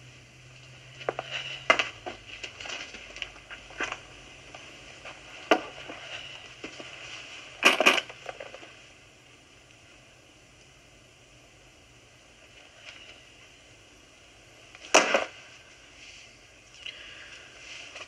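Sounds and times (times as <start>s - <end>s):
briefcase clicks and rustles: 1.0s - 4.1s, 7.6s - 8.7s.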